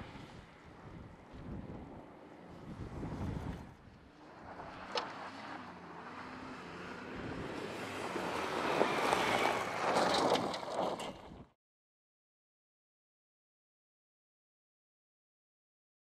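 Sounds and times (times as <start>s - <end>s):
gravel crackling from tyres: 0.0s - 11.5s
vehicle driving fast on gravel: 0.0s - 11.5s.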